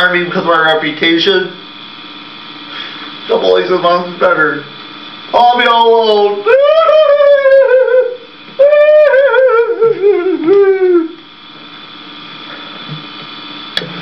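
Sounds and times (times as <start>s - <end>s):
steady background hum: 0.0s - 14.0s
man wailing: 6.4s - 11.2s.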